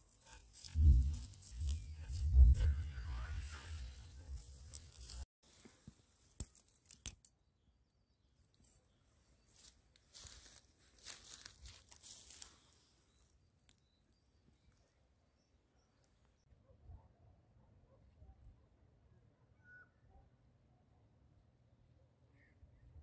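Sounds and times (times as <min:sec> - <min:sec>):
rustling grass and dry leaves: 0:00.0 - 0:07.2, 0:08.4 - 0:13.8
low rumble: 0:00.6 - 0:05.2.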